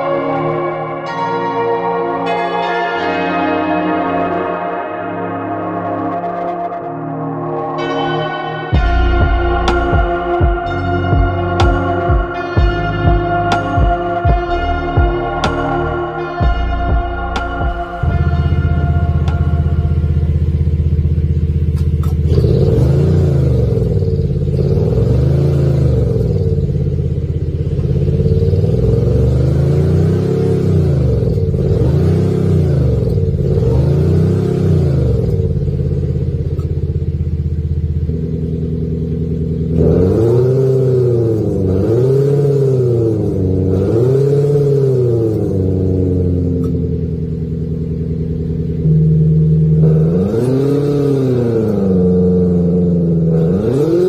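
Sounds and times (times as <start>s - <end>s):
engine throttle blips: 0.0s - 54.0s
synthetic exhaust idling: 0.0s - 54.0s.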